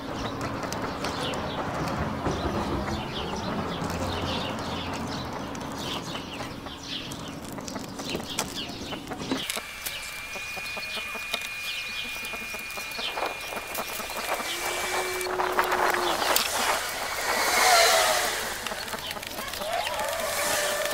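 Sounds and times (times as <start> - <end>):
birds clucking and chirping: 0.0 - 20.9
steady high tone: 9.6 - 18.7.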